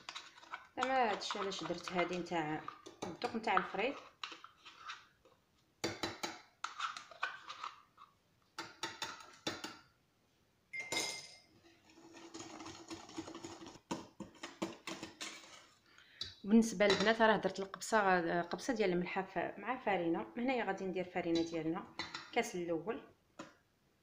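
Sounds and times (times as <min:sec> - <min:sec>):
spoon scraping plastic cup: 0:00.0 - 0:05.3, 0:06.6 - 0:08.2, 0:11.6 - 0:15.8, 0:21.3 - 0:22.4
spoon clinking on metal bowl: 0:10.8 - 0:11.4.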